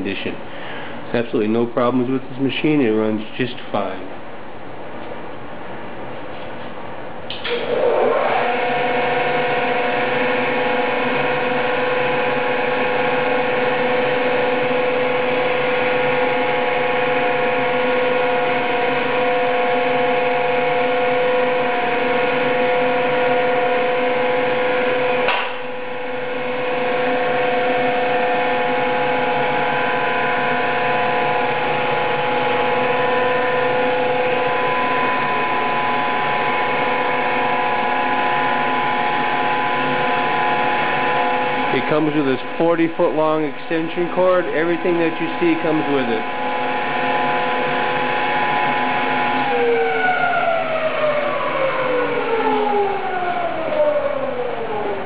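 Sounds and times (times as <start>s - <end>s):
floor sander motor whining: 7.3s - 55.0s.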